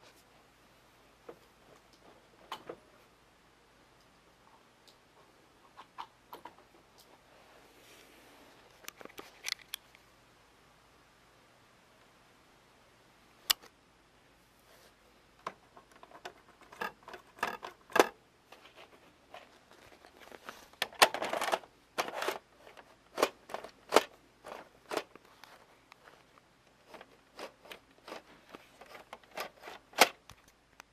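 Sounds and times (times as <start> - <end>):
hands handling video recorder parts: 8.7 - 10.0, 14.8 - 30.9.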